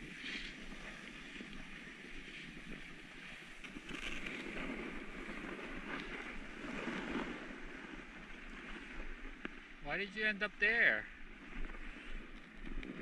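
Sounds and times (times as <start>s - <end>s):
wind on microphone: 0.0s - 10.0s
skis scraping over snow: 0.0s - 13.0s.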